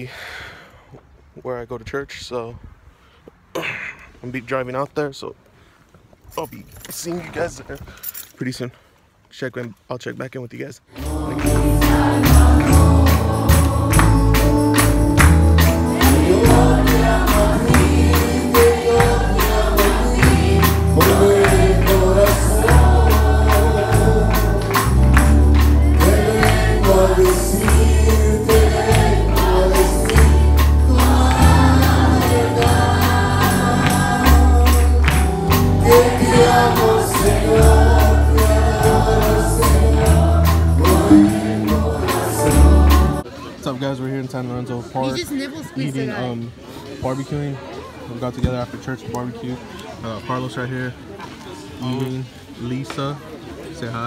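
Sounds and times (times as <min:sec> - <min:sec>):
man and women singing: 0:10.9 - 0:15.0, 0:15.6 - 0:43.2
guitar: 0:10.9 - 0:43.2
keyboard: 0:10.9 - 0:43.4
drum kit beat: 0:11.0 - 0:43.2.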